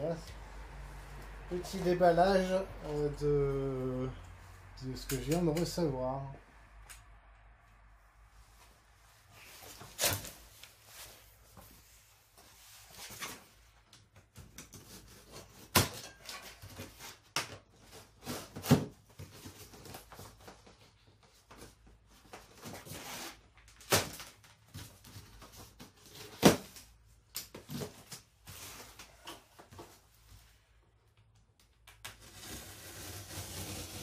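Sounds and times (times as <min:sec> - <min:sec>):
rustling and scraping of cardboard: 0:08.5 - 0:26.9, 0:27.6 - 0:30.8, 0:32.2 - 0:34.0.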